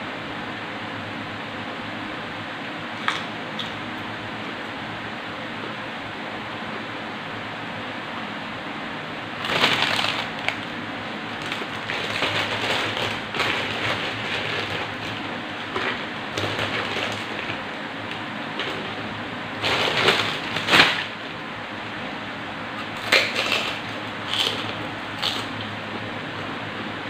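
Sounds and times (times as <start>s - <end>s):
plastic bag crinkling: 9.4s - 17.7s, 19.6s - 21.2s, 23.0s - 25.5s.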